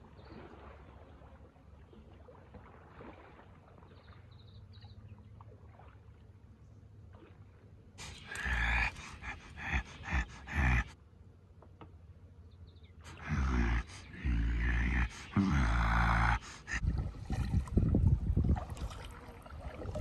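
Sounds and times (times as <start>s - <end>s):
person growling and grunting: 8.0s - 11.0s, 13.1s - 16.9s.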